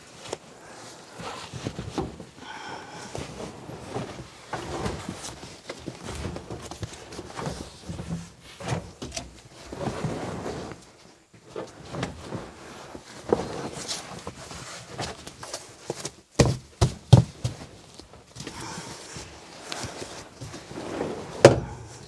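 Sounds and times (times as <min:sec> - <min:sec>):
carpet rustling and scraping: 0:00.0 - 0:22.0.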